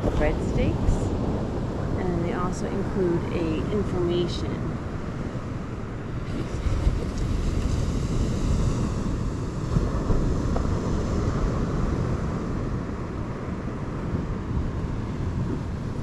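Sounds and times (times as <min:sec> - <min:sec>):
wind on microphone: 0:00.0 - 0:16.0
surf rushing: 0:04.8 - 0:16.0.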